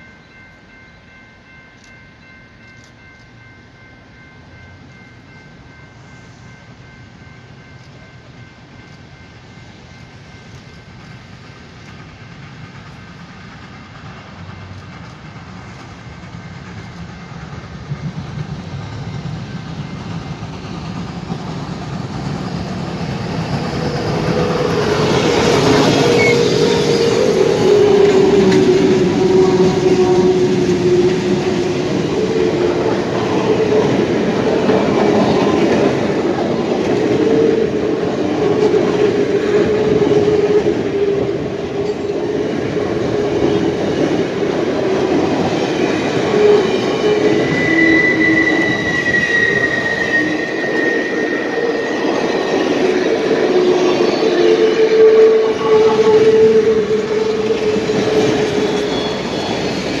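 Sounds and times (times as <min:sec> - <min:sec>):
rumble of wheels on rail: 0:00.0 - 1:00.0
wheel flanges squealing: 0:23.6 - 0:36.6, 0:44.8 - 1:00.0
high thin squeal: 0:24.3 - 0:30.3, 0:46.3 - 1:00.0.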